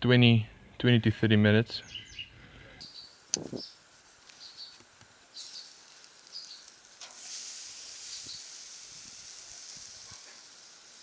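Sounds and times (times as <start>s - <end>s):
bird chirps: 1.8s - 4.8s, 5.4s - 6.7s
fish sizzling on a grill: 2.8s - 11.0s.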